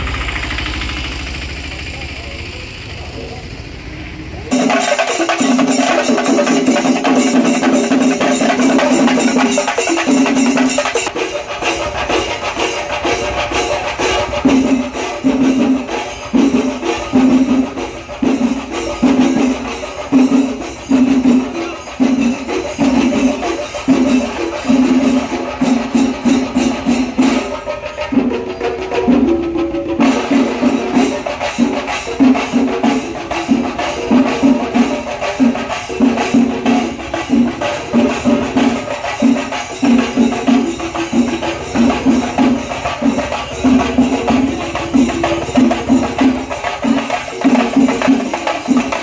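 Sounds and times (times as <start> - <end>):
jingling cymbals: 0.0 - 49.0
fast drumming: 4.4 - 49.0.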